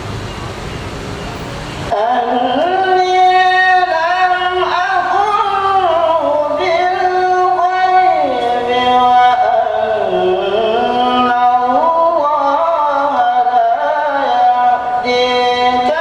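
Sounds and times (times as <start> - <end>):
man reciting melodically: 1.9 - 16.0.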